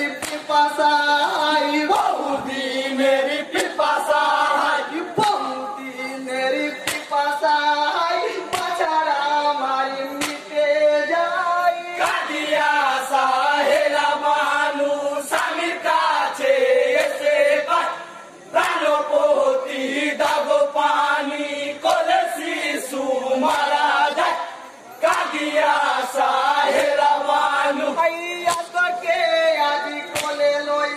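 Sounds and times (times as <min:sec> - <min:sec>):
men singing lament in chorus: 0:00.0 - 0:30.9
sharp hand claps: 0:00.1 - 0:00.6, 0:06.8 - 0:07.2, 0:08.5 - 0:08.9, 0:10.2 - 0:10.6, 0:15.3 - 0:15.7, 0:17.0 - 0:17.2, 0:18.6 - 0:18.9, 0:23.4 - 0:23.7, 0:25.0 - 0:25.4, 0:28.4 - 0:28.8, 0:30.1 - 0:30.5.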